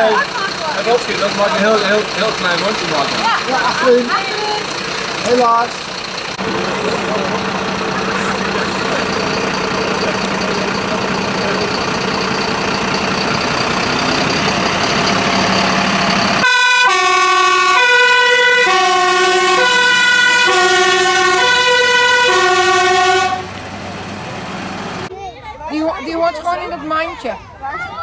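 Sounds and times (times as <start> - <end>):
diesel truck engine pulling away: 0.0 - 25.1
two-tone siren: 16.4 - 23.6.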